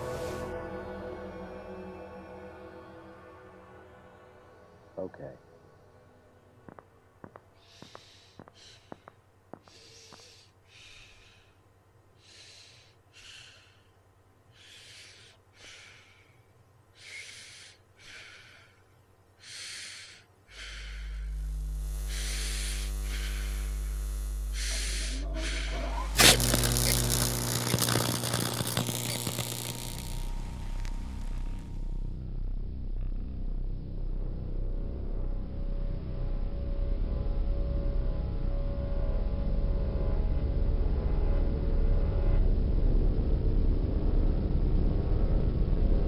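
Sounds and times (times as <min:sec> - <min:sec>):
low electrical hum: 0:15.5 - 0:46.0
loud buzzing crackle: 0:20.6 - 0:35.2.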